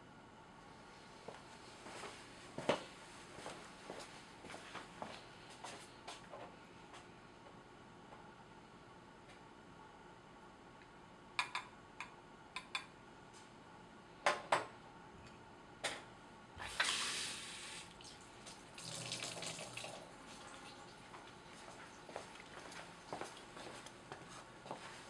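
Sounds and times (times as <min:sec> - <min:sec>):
running water hiss: 0:16.6 - 0:20.6.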